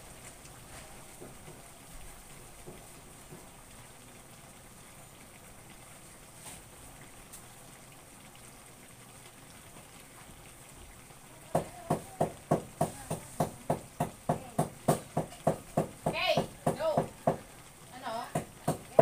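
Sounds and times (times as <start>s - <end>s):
simmering pot hiss: 0.0s - 19.0s
sharp loud knocks: 11.5s - 17.4s, 18.3s - 19.0s.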